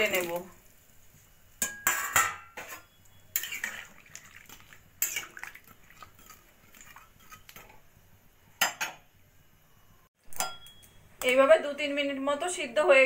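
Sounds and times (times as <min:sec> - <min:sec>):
metal spatula scraping a pan: 0:01.6 - 0:07.8.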